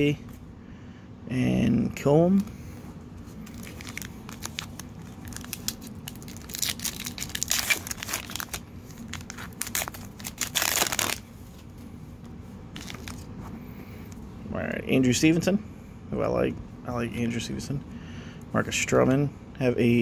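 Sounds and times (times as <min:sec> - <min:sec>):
wrapper crinkling and tearing: 0:03.4 - 0:11.2, 0:12.8 - 0:13.3.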